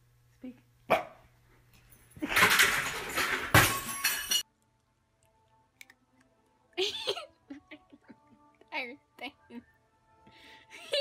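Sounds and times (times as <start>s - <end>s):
dog knocking things over crash: 2.2s - 4.4s.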